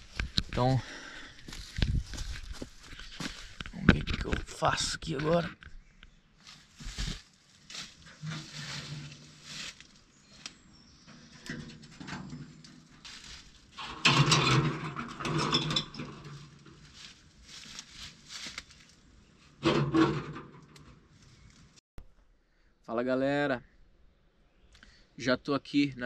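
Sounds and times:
footsteps on leaves: 1.4s - 3.6s, 6.4s - 10.4s, 13.0s - 13.7s, 16.7s - 19.1s
rustling on leafy ground: 1.5s - 3.6s, 6.4s - 10.6s, 12.9s - 13.8s, 16.3s - 19.1s.

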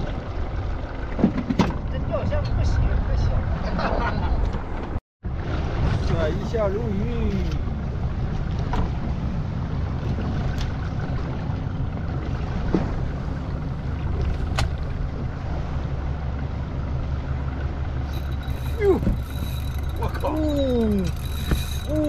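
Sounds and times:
boat engine humming: 0.0s - 22.0s
person exclaiming: 18.8s - 19.2s.

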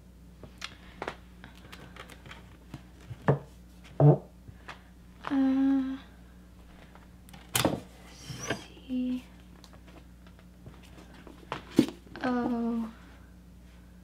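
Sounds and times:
woman humming hmm: 5.2s - 6.2s.

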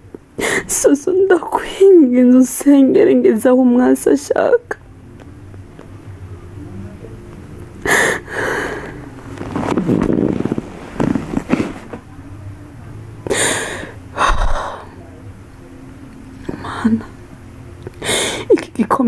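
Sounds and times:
faint low hum: 0.0s - 19.0s
woman sobbing and sniffing: 7.8s - 9.0s.

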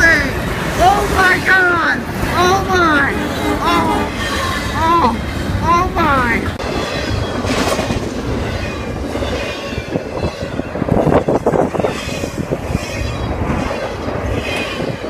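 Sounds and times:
train wheels clattering over rails: 6.6s - 15.0s.

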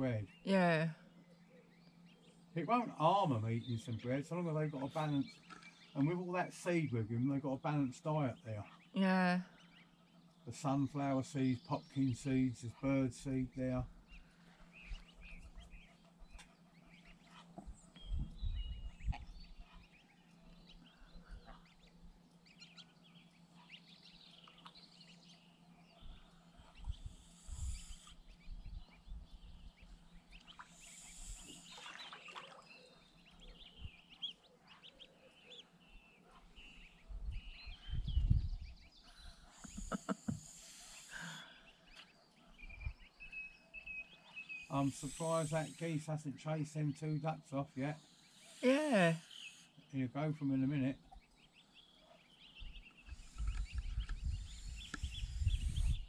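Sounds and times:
soft peeps: 8.2s - 31.9s, 32.8s - 49.8s, 50.4s - 56.0s
wind rumble on microphone: 17.6s - 19.7s, 26.0s - 30.0s, 37.0s - 39.4s, 42.6s - 43.0s, 52.6s - 56.0s
geese calling: 44.7s - 46.2s.

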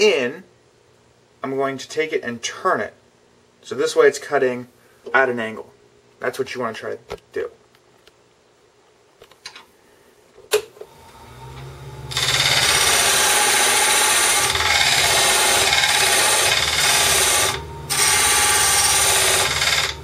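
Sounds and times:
lathe motor humming: 10.9s - 20.0s
tool scraping spinning wood: 12.1s - 20.0s.

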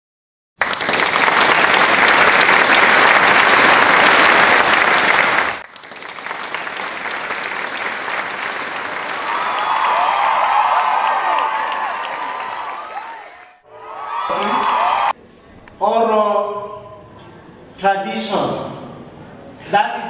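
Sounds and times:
applause: 0.6s - 13.6s.

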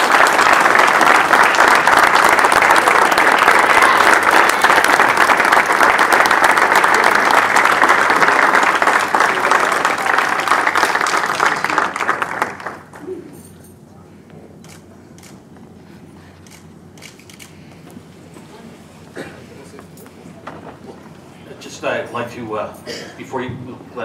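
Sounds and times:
people applauding: 0.0s - 13.3s.

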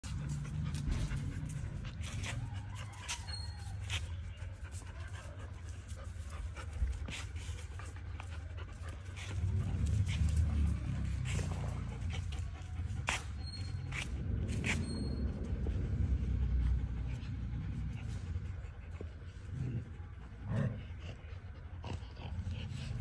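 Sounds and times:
puppies scuffling: 0.0s - 16.0s
puppies panting: 0.0s - 23.0s.

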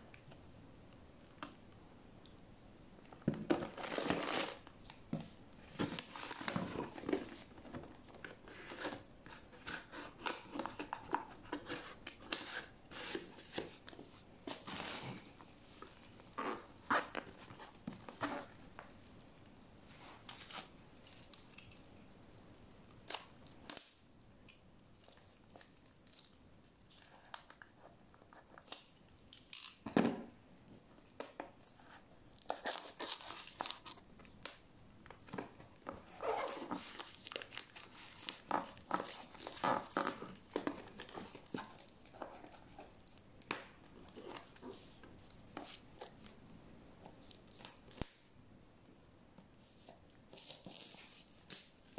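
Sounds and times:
shrink wrap crinkling and tearing: 3.5s - 5.0s, 5.6s - 15.0s, 20.0s - 22.2s, 22.8s - 29.9s, 31.1s - 46.4s, 49.6s - 51.9s.

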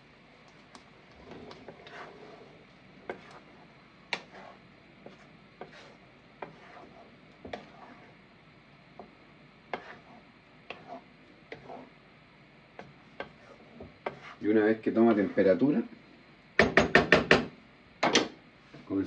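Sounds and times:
wooden spoon scraping a pan: 0.5s - 8.2s, 9.0s - 12.0s, 12.7s - 15.6s.

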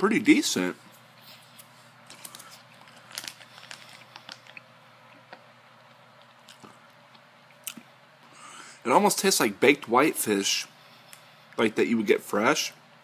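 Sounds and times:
faint chewing: 2.1s - 7.9s.

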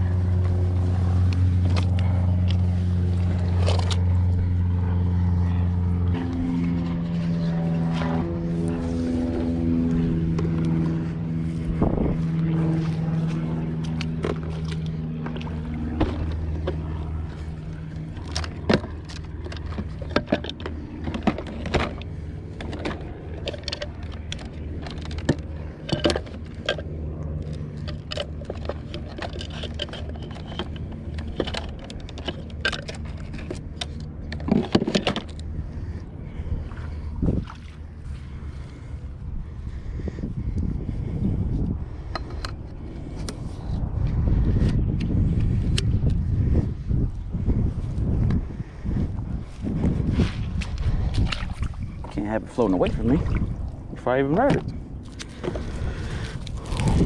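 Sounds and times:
engine humming: 0.0s - 57.0s
clicks and knocks of gear: 17.7s - 35.5s.

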